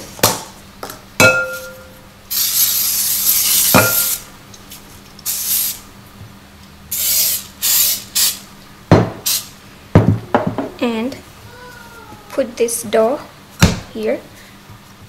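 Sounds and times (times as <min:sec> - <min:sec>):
sharp clink: 0:01.2 - 0:02.0
cooking spray hissing: 0:02.3 - 0:04.3, 0:05.2 - 0:05.8, 0:06.9 - 0:08.5, 0:09.2 - 0:09.6.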